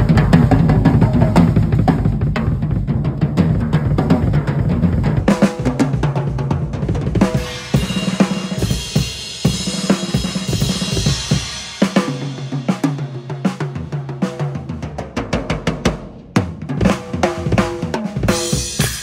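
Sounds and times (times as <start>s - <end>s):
drum kit playing tom fills: 0.0s - 19.0s
cymbal wash: 7.3s - 13.3s.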